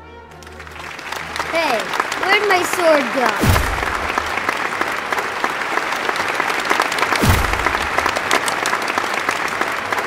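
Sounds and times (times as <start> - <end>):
audience clapping: 0.3 - 10.0
low thump: 3.4 - 4.2, 7.2 - 8.1.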